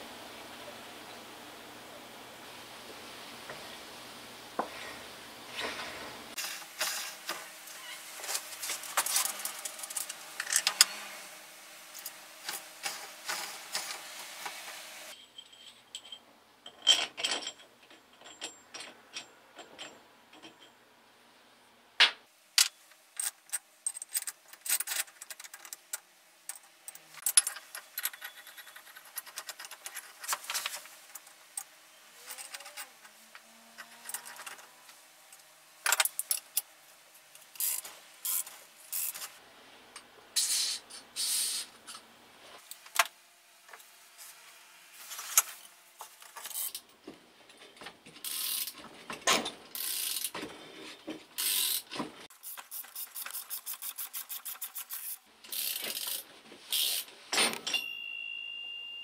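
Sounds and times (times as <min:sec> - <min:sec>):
metal parts clinking and rattling: 0:08.2 - 0:10.9, 0:15.2 - 0:20.8, 0:22.6 - 0:33.0, 0:35.8 - 0:36.7, 0:52.5 - 0:57.9.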